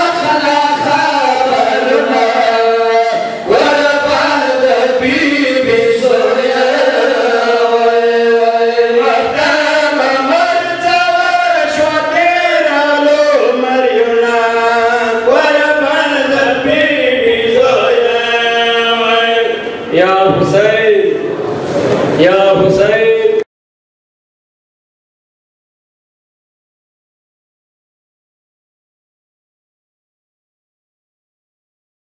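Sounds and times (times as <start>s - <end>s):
men chanting a lament: 0.0s - 21.1s.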